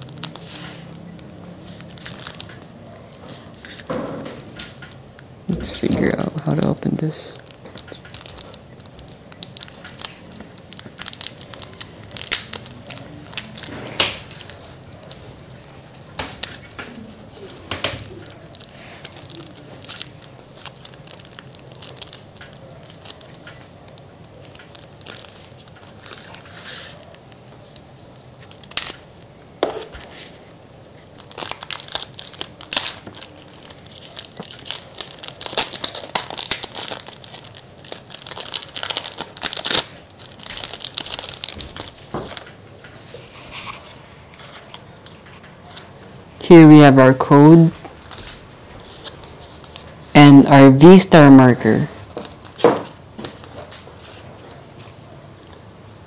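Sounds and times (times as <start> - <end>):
plastic wrapping tearing and crinkling: 0.0 - 46.6, 47.3 - 50.2, 50.9 - 54.6.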